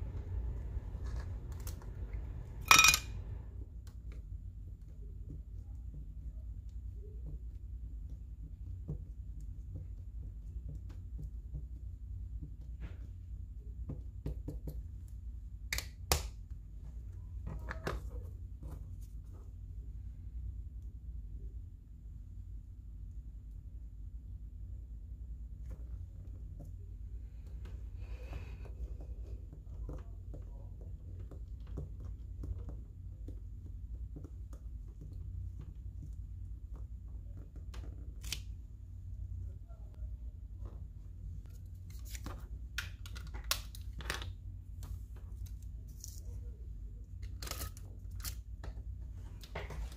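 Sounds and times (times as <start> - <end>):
steady low hum: 0.0 - 14.2.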